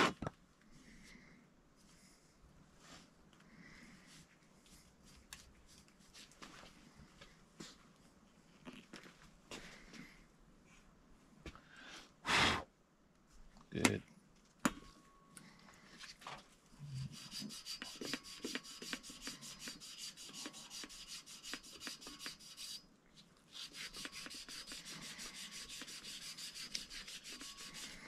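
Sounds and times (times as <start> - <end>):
scrubbing copper pipe by hand: 17.0 - 22.8, 23.5 - 28.0.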